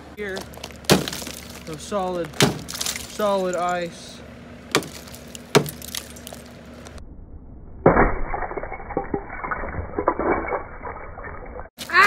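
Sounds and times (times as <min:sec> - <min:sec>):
ice cracking: 0:00.2 - 0:03.4
ice shattering and scattering: 0:00.3 - 0:03.4, 0:04.7 - 0:06.5, 0:07.9 - 0:12.0.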